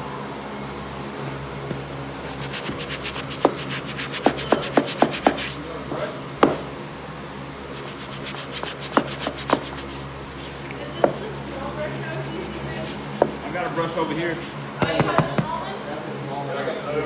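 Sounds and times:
brush scrubbing wet tiles: 0:01.7 - 0:05.6, 0:07.7 - 0:14.6
brush knocking against tile: 0:02.4 - 0:05.6, 0:06.4 - 0:06.7, 0:07.8 - 0:10.0, 0:11.0 - 0:15.4.

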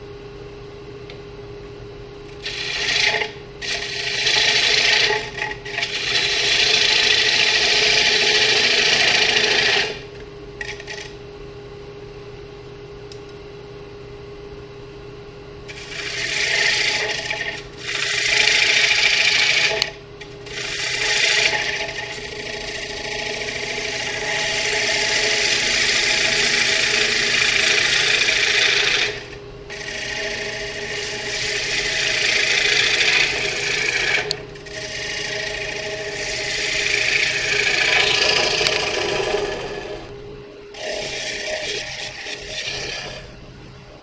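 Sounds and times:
lathe humming: 0:02.3 - 0:11.2, 0:15.7 - 0:43.5
gouge cutting spinning wood: 0:02.4 - 0:11.1, 0:15.7 - 0:40.1, 0:40.7 - 0:43.4.

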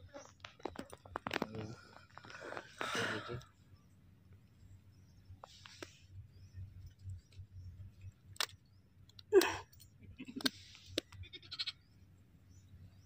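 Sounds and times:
sheep bleating: 0:11.2 - 0:11.8.

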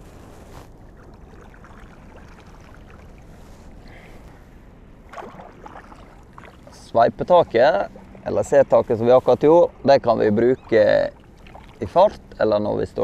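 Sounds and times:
low steady rumble: 0:00.0 - 0:13.0
paddle splashing in water: 0:00.5 - 0:04.2, 0:05.0 - 0:06.9, 0:10.6 - 0:11.8.

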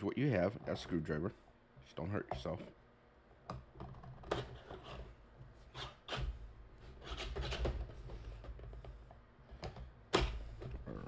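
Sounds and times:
screwdriver scraping cardboard: 0:05.7 - 0:06.3, 0:06.9 - 0:07.8.

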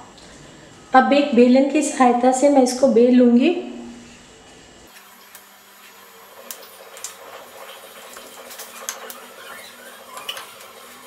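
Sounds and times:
rolling pin rolling dough: 0:07.2 - 0:11.0.

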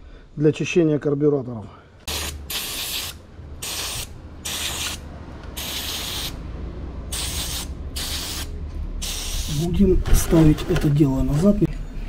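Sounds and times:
aerosol can spraying: 0:02.1 - 0:06.4, 0:07.1 - 0:09.6.

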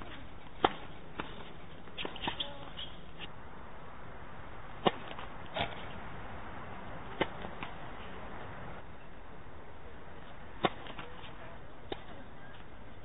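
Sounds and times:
tennis ball pops: 0:07.1 - 0:07.8, 0:10.6 - 0:11.1.

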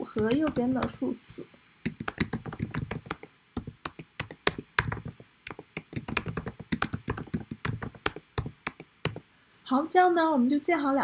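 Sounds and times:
typing on computer keyboard: 0:00.0 - 0:01.0, 0:01.9 - 0:09.2.

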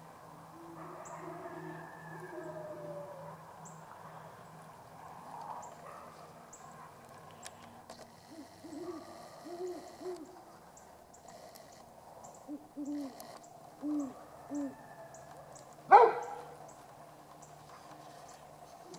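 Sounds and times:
owl hooting: 0:00.5 - 0:03.4, 0:08.2 - 0:10.4, 0:12.4 - 0:15.0.

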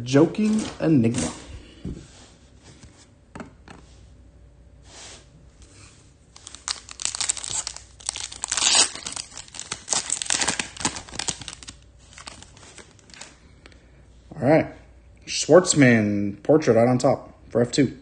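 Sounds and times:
foil wrapper tearing and crinkling: 0:06.4 - 0:13.4.

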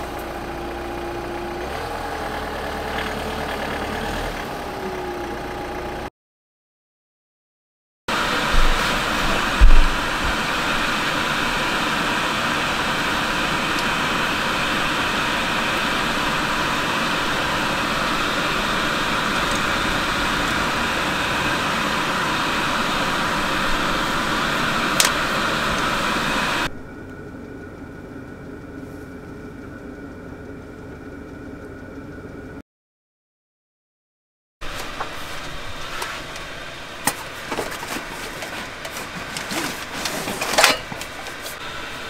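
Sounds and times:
heater fan whirring: 0:08.1 - 0:32.6, 0:34.7 - 0:42.0
faint whining tones: 0:08.3 - 0:32.6.

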